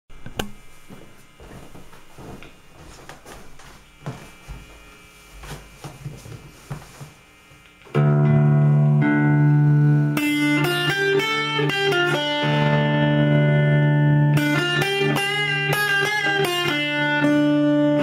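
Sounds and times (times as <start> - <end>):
guitar handling knocks and taps: 0.2 - 0.6
acoustic guitar chord strummed: 8.0 - 18.0.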